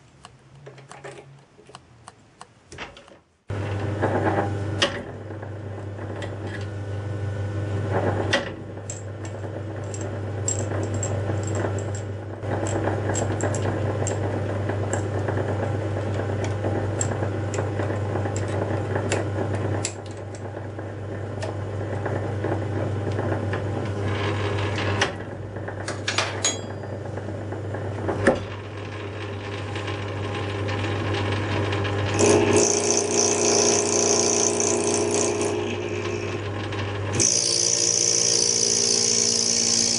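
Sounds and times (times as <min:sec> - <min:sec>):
lathe motor hum: 0:28.6 - 0:39.9
high-pitched cutting whine: 0:32.2 - 0:36.4, 0:37.2 - 0:39.9.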